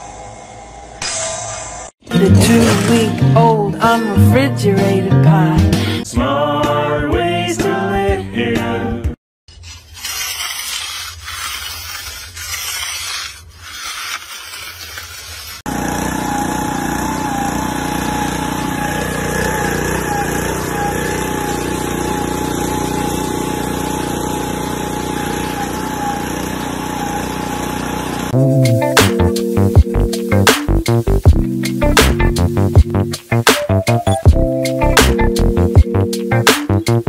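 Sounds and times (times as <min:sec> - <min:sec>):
hand edger scraping concrete: 0:02.4 - 0:03.2, 0:09.5 - 0:28.4
small gasoline engine running: 0:13.6 - 0:28.4.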